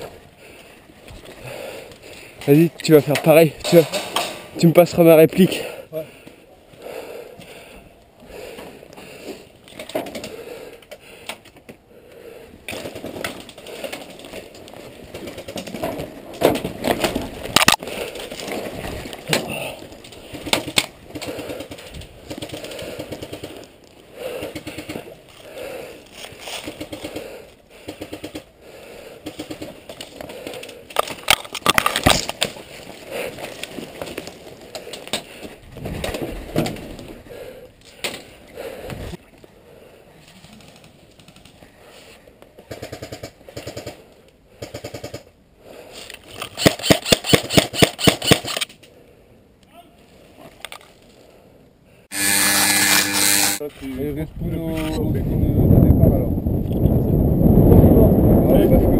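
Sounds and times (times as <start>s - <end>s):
rustling through brush: 24.7s - 27.2s.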